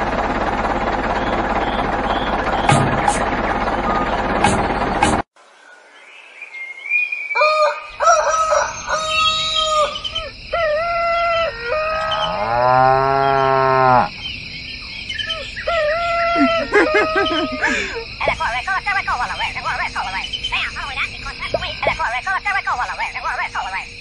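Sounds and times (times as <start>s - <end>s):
birds chirping: 1.0s - 24.0s
long cow moo: 11.9s - 14.1s.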